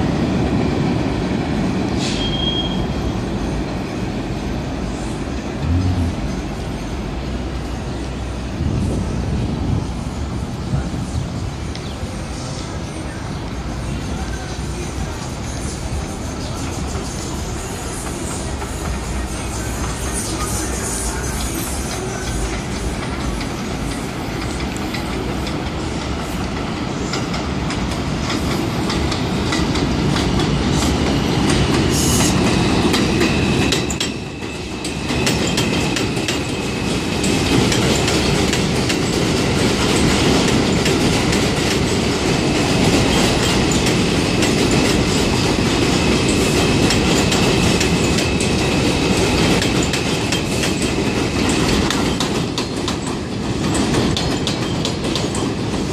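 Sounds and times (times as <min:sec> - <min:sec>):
high wheel squeal: 0:02.0 - 0:07.9
train wheels clattering over rail joints: 0:21.3 - 0:55.9.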